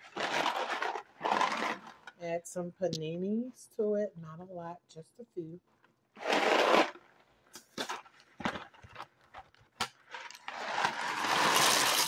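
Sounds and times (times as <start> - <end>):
dry pasta rattling in box: 0.0 - 2.1, 7.8 - 12.0
pasta pouring into pot: 10.3 - 12.0.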